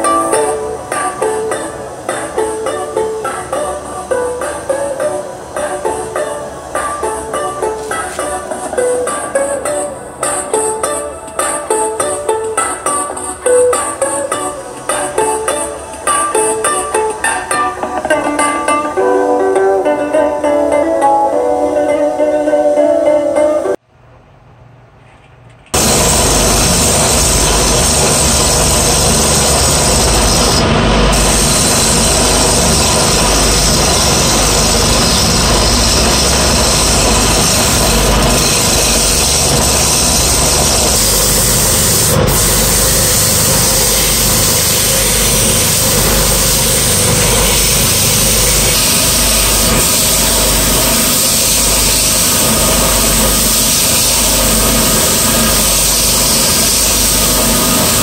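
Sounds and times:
lathe motor hum: 25.8s - 58.0s
sandpaper on spinning wood: 25.8s - 58.0s.

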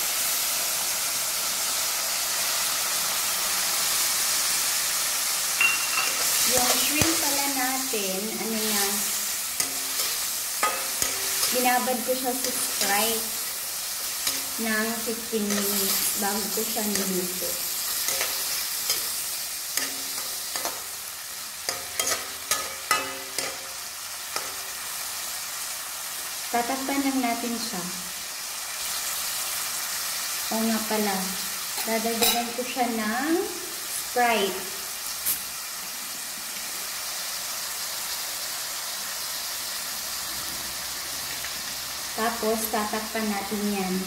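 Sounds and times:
shrimp sizzling in a wok: 0.0s - 44.0s
metal spatula clinking on wok: 5.6s - 7.1s, 9.6s - 11.6s, 21.7s - 23.7s.

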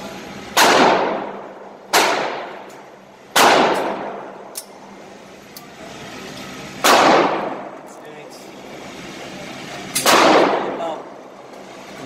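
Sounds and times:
pistol shots reverberating indoors: 0.6s - 2.7s, 3.3s - 4.6s, 6.8s - 7.7s, 10.0s - 10.8s.

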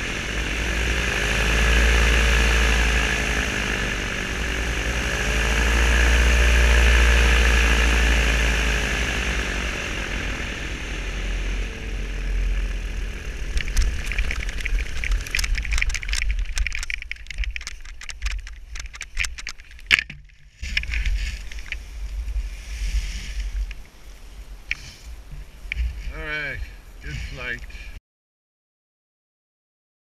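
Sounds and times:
paramotor engine and propeller: 0.0s - 24.0s, 24.7s - 28.0s
rush of wind: 7.2s - 28.0s.

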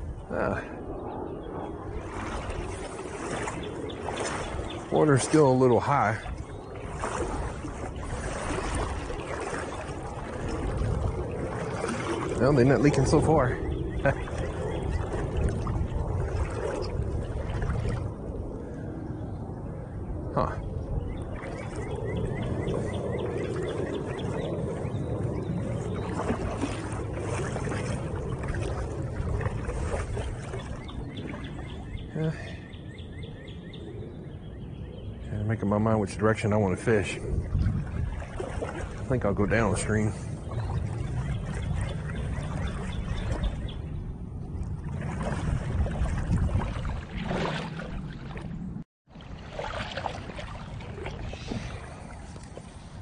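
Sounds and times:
steady low rumble: 0.0s - 53.0s
water sloshing around wading legs: 1.3s - 19.0s, 20.6s - 33.1s, 35.6s - 53.0s
small splashes: 1.8s - 18.9s, 20.4s - 32.7s, 35.8s - 53.0s
bird chirping: 12.8s - 15.4s, 30.4s - 35.7s, 39.7s - 44.0s.

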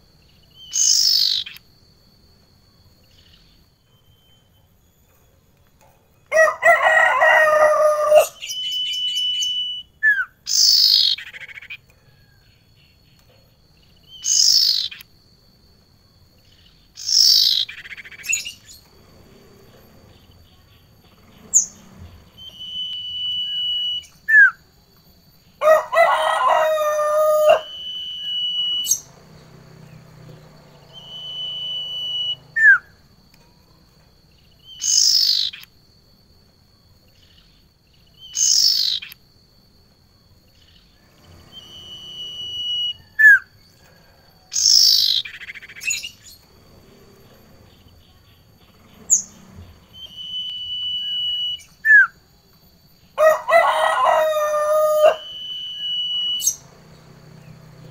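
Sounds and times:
birds whistling: 0.0s - 1.8s, 2.9s - 5.2s, 6.4s - 15.2s, 16.4s - 33.2s, 34.3s - 35.8s, 37.0s - 39.2s, 40.4s - 57.9s
harsh bird call: 25.6s - 30.1s, 53.2s - 56.8s.

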